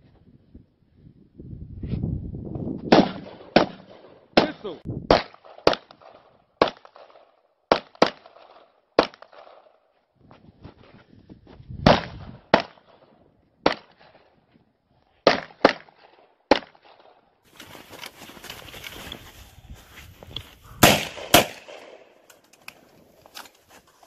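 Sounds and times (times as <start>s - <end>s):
pistol shots: 2.9s - 9.8s, 15.2s - 17.2s, 20.8s - 22.2s.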